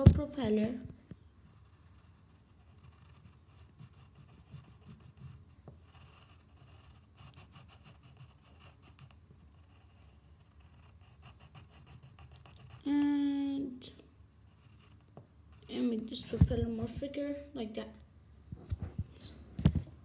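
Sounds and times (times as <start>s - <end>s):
pencil scratching on paper: 1.4s - 13.2s, 14.5s - 16.8s.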